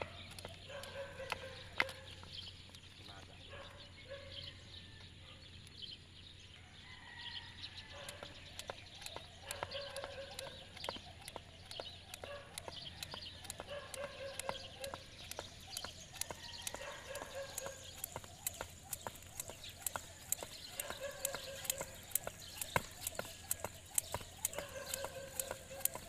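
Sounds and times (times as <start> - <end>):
sharp clicks and taps: 0.0 - 3.3, 8.0 - 26.0
chirping animal calls: 7.8 - 26.0.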